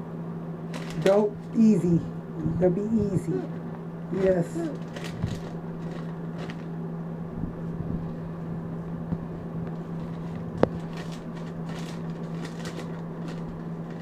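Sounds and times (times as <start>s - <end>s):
low hum: 0.0s - 14.0s
thin pages rustling: 0.7s - 1.2s, 3.6s - 6.7s, 9.7s - 14.0s.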